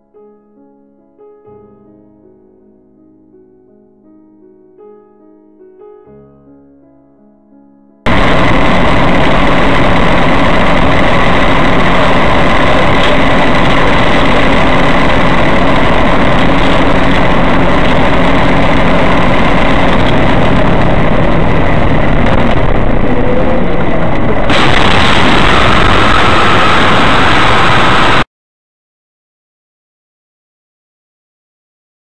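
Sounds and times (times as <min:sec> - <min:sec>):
steady whining tones: 0:08.1 - 0:28.3
vehicle engine and road drone: 0:08.1 - 0:28.3.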